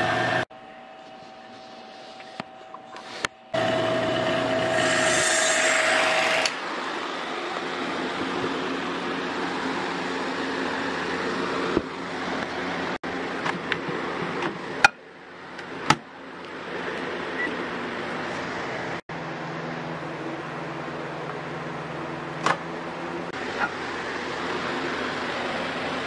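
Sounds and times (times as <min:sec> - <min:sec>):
microwave oven humming: 0:02.2 - 0:05.0.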